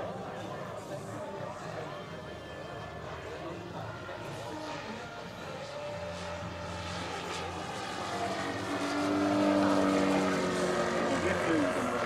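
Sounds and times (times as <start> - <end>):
model plane engine drone: 0.0 - 12.0.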